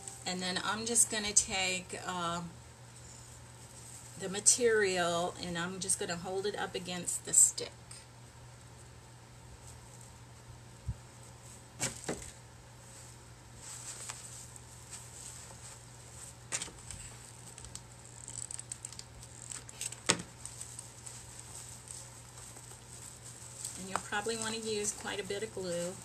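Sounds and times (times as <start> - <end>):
low steady hum: 0.0 - 26.0
fabric and plastic crinkling: 11.2 - 26.0.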